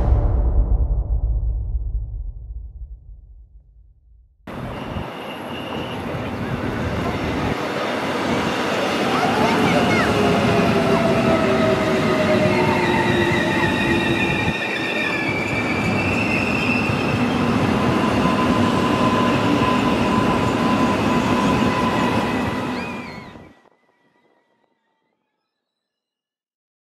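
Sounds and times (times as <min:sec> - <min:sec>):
train wheels rumbling on rail: 0:04.5 - 0:24.3
whining squealing tones: 0:08.3 - 0:24.3.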